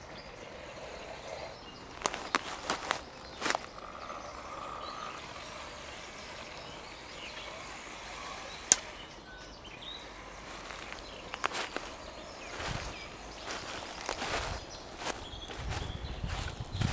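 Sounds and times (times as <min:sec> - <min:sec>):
small electric motors running: 0:00.0 - 0:16.9
sharp click: 0:08.6 - 0:09.0.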